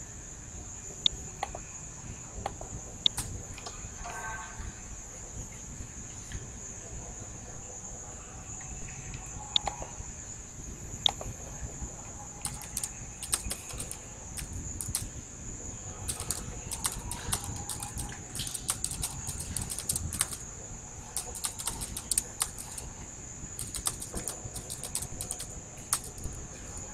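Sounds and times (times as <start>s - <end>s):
steady high-pitched whine: 0.0s - 26.9s
computer keyboard typing: 3.1s - 3.4s, 12.4s - 15.1s, 16.0s - 22.9s, 23.6s - 26.4s.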